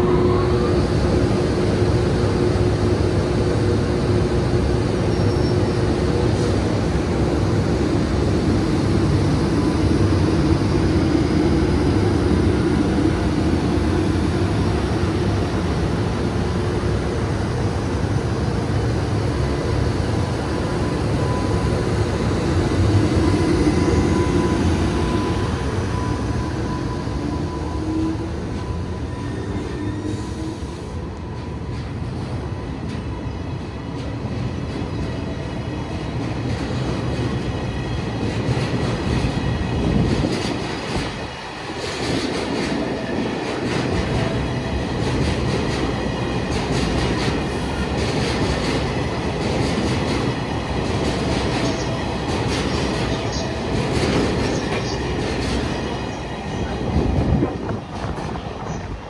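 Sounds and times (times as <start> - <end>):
train wheels clacking over rail joints: 45.0 - 55.8.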